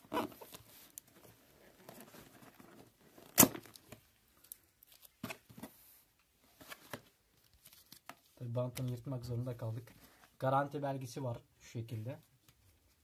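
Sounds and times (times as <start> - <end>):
tape ripping off box: 3.2 - 4.0.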